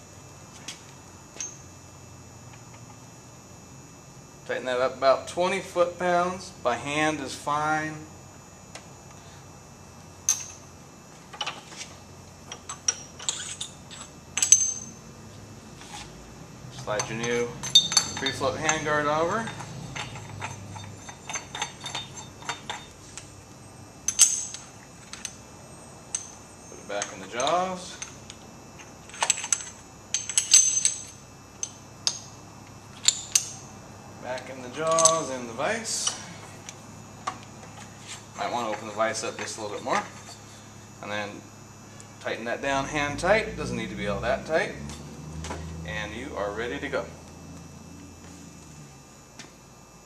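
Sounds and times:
metal parts and tools clinking: 10.3s - 10.6s, 12.5s - 15.0s, 16.8s - 23.3s, 24.1s - 25.4s, 26.1s - 28.4s, 29.0s - 32.3s, 33.0s - 33.7s, 34.3s - 36.3s.

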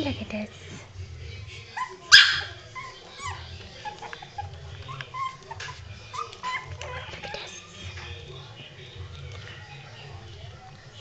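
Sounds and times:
puppies whimpering and yipping: 1.7s - 8.0s.

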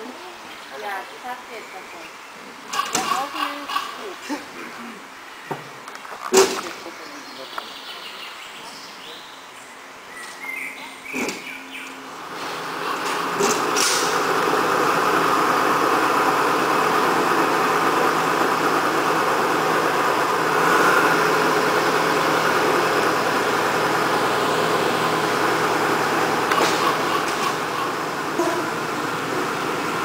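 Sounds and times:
diesel locomotive engine running: 11.0s - 30.0s
rail clanks: 12.3s - 14.8s, 25.0s - 28.9s.

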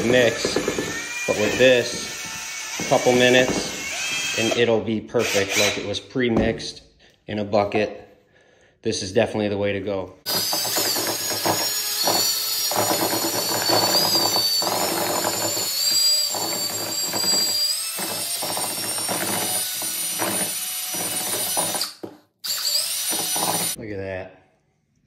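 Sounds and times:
drill motor whine: 10.3s - 21.9s, 22.5s - 23.8s.

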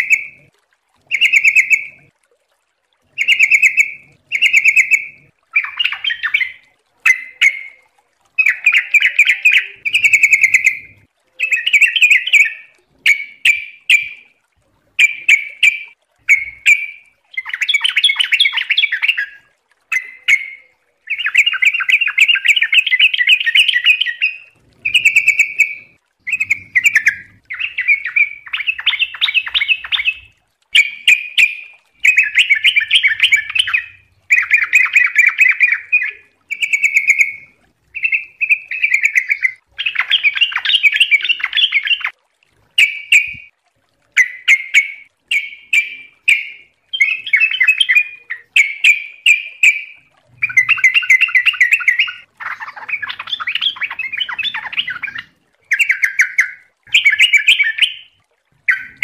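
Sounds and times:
bird singing: 0.0s - 0.5s, 1.1s - 2.0s, 3.2s - 7.8s, 8.4s - 14.2s, 19.9s - 42.1s, 44.2s - 58.1s.

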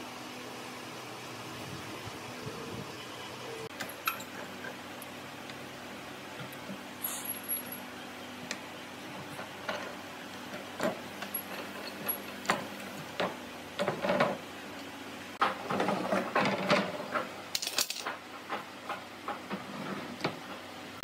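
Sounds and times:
metal clamps clicking and clanking: 3.7s - 4.5s, 17.5s - 18.2s.

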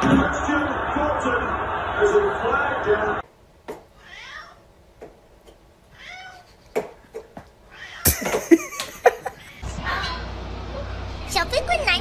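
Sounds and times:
cat meowing: 4.0s - 4.6s, 5.9s - 6.5s, 7.7s - 8.1s.

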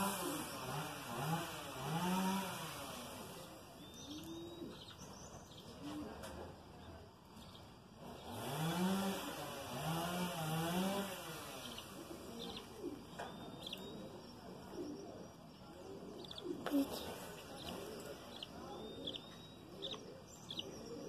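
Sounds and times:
small birds chirping: 0.0s - 21.0s
dove cooing: 4.0s - 4.9s, 10.8s - 21.0s.

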